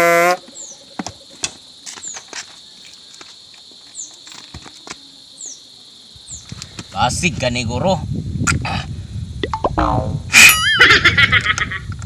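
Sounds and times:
high insect drone: 0:00.0 - 0:12.0
short high downward chirps: 0:09.4 - 0:10.6.

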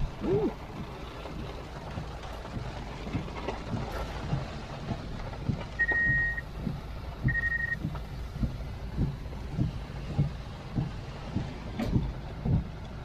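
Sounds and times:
car cabin low rumble: 0:00.0 - 0:13.0
soft thumps: 0:02.0 - 0:12.8
electronic beeps: 0:05.8 - 0:06.4, 0:07.3 - 0:07.8.

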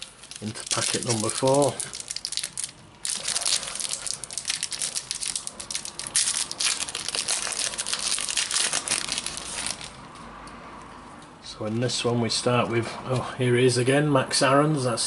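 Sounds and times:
foil wrapper tearing and crinkling: 0:00.0 - 0:10.0.

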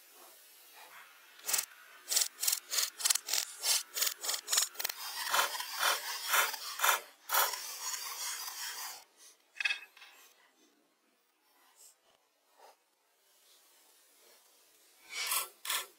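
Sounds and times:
hand saw cutting log: 0:01.4 - 0:09.0, 0:15.1 - 0:15.9.

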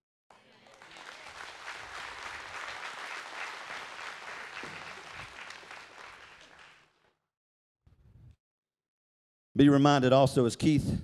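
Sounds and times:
congregation applauding: 0:00.3 - 0:07.1.

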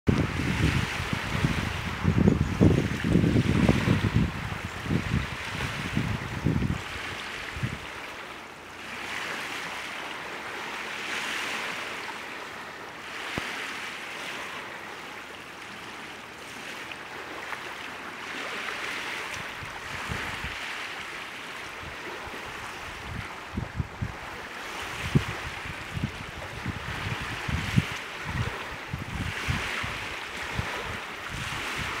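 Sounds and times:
wind buffeting microphone: 0:00.1 - 0:08.2, 0:18.3 - 0:21.0, 0:21.7 - 0:32.0
small waves lapping on shore: 0:00.1 - 0:32.0.

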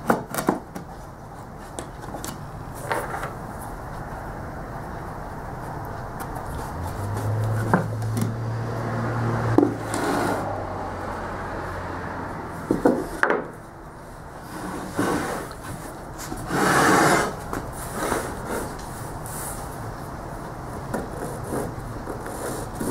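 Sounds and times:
wood scraping on wood: 0:06.2 - 0:08.4, 0:09.5 - 0:10.5, 0:14.4 - 0:19.7
sharp wooden knocks: 0:12.7 - 0:13.5.

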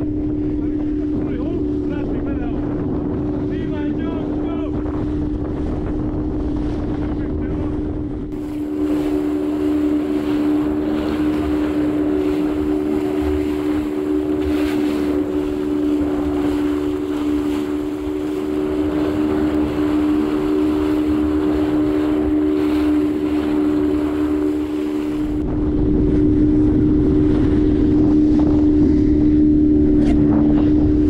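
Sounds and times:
boat motor running: 0:00.0 - 0:31.0
wind rumble on microphone: 0:00.0 - 0:31.0.

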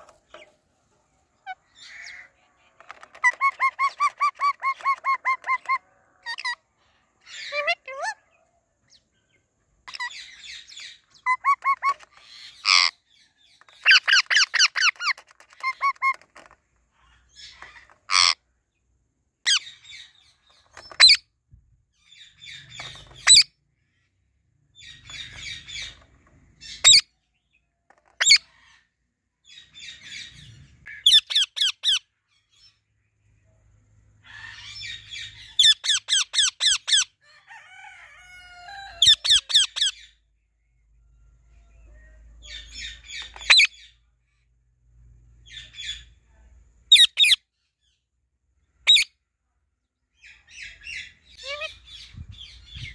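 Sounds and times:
parakeets squawking: 0:01.4 - 0:06.6, 0:09.9 - 0:13.0, 0:13.7 - 0:18.4.

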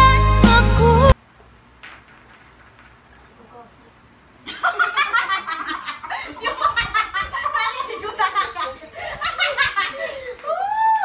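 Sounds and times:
group of people laughing: 0:04.5 - 0:10.4.

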